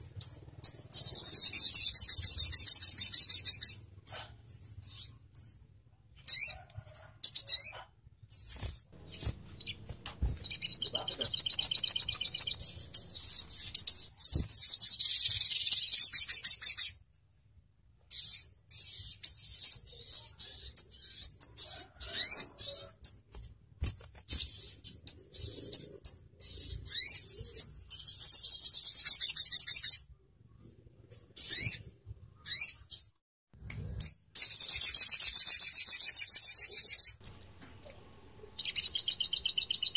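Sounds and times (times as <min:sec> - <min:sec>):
sunbird singing with trills: 0:00.0 - 0:03.8, 0:07.3 - 0:17.0, 0:38.6 - 0:39.9.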